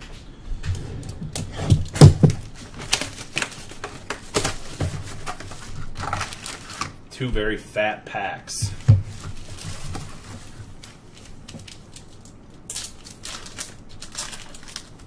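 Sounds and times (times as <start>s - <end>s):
packs crinkling and rustling: 1.2s - 7.0s, 8.7s - 15.0s.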